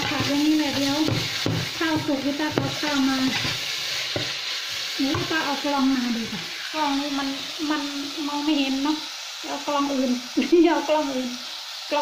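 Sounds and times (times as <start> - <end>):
spatula scraping pan: 0.0 - 7.6
meat and vegetables sizzling in pan: 0.0 - 12.0.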